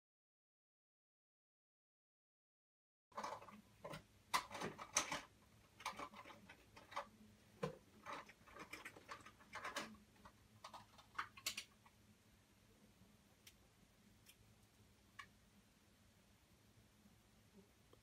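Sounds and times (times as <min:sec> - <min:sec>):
faint low hum: 0:03.1 - 0:18.0
faint irregular clicks and taps: 0:03.2 - 0:12.0, 0:14.2 - 0:15.4.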